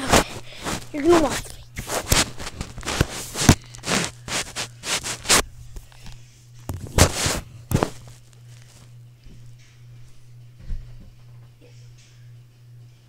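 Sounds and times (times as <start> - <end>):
phone rustling against fabric: 0.0 - 9.0.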